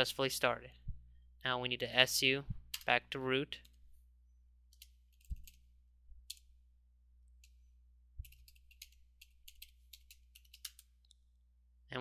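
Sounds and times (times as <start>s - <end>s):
keyboard typing clicks: 8.2s - 10.9s.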